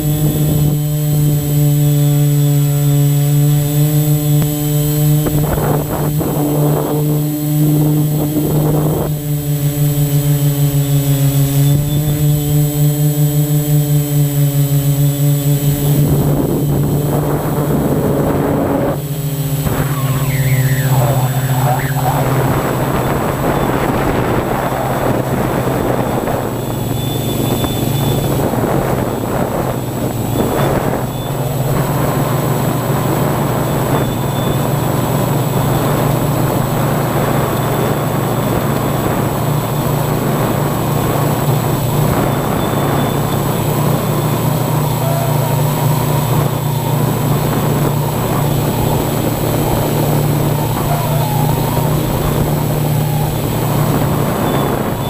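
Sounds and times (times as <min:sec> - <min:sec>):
drone propellers humming: 0:00.0 - 0:55.0
rushing noise: 0:19.1 - 0:25.6.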